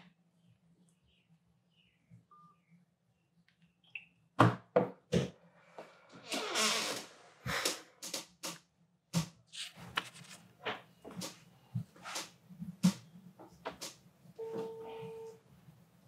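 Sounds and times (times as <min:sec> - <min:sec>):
paper rustling: 0:09.5 - 0:10.5.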